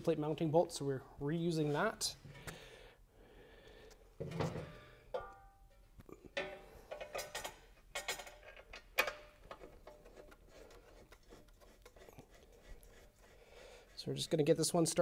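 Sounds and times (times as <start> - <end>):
metal plate clinking and knocking: 4.2 - 5.6, 6.3 - 10.3.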